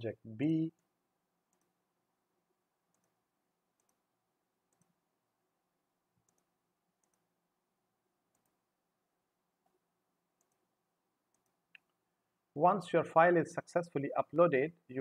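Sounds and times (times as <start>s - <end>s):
faint computer mouse clicks: 3.8s - 4.0s, 4.7s - 5.0s, 6.2s - 7.2s, 11.3s - 12.0s.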